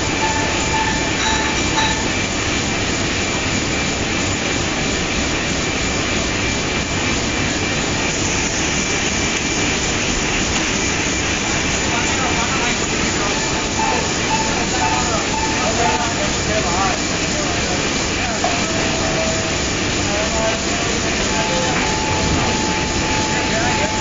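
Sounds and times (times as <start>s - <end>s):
high whine: 0.0s - 2.2s, 11.4s - 17.2s, 18.4s - 24.0s
printing press rumble and clatter: 0.0s - 24.0s.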